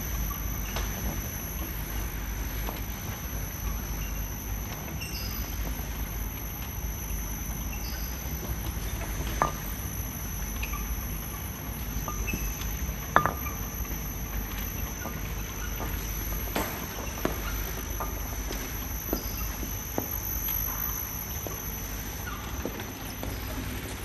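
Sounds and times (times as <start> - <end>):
faint high whine: 0.0 - 24.0
low machinery hum: 0.0 - 24.0
glass bottles clinking: 12.0 - 14.0.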